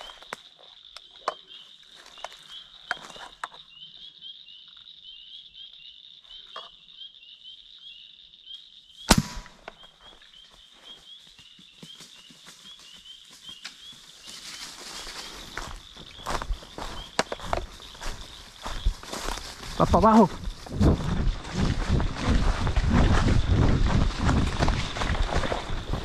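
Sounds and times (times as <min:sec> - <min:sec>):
frogs and insects chirping: 0:00.0 - 0:26.0
loud sharp crack: 0:09.1 - 0:09.6
rustles and steps in dry leaves: 0:12.0 - 0:26.0.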